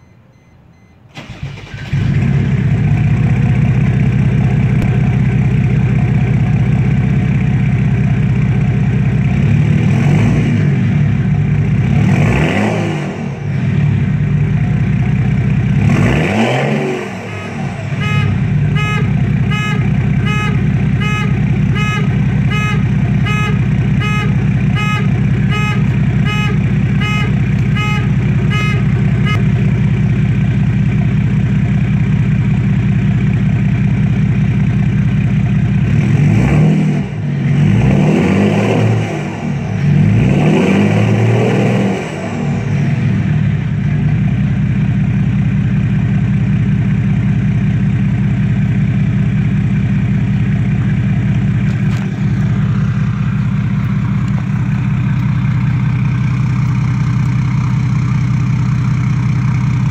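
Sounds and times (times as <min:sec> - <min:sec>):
steady beeping: 0:00.0 - 0:01.1, 0:17.2 - 0:29.5
car engine idling and revving: 0:00.0 - 0:59.9.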